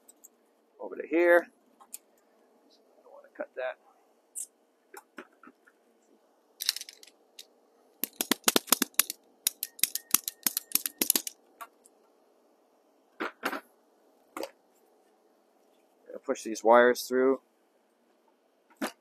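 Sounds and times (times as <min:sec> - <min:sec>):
rapid clicks and clacks: 0:08.0 - 0:11.4.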